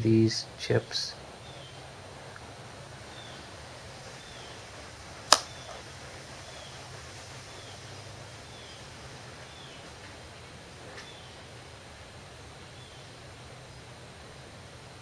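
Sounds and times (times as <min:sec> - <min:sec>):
steady low hum and hiss: 0:00.0 - 0:15.0
sharp click: 0:05.3 - 0:05.6.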